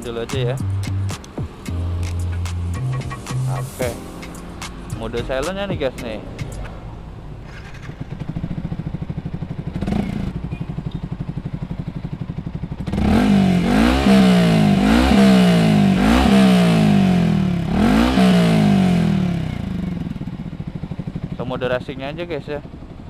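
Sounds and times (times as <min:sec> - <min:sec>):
motorcycle idling: 0:04.4 - 0:23.0
motorcycle throttle blips: 0:07.4 - 0:16.8.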